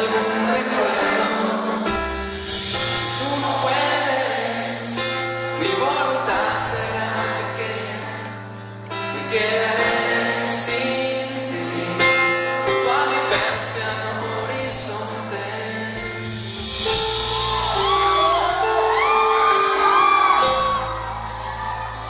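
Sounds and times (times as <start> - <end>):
man singing into a microphone: 0.0 - 17.3.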